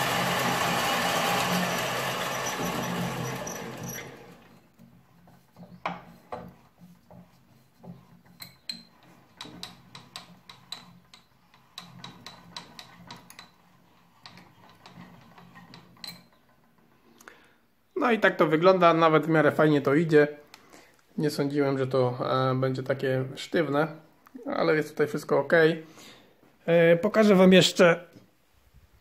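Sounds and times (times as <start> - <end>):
lathe drilling into metal rod: 0.0 - 4.6.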